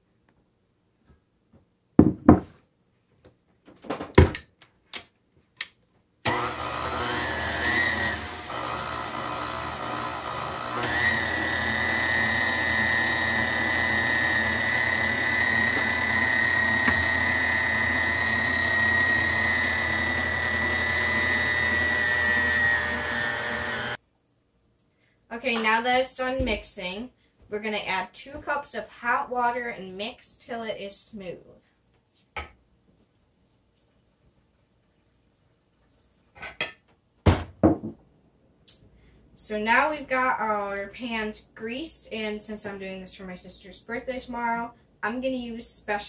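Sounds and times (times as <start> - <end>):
stand mixer motor running: 6.3 - 24.0.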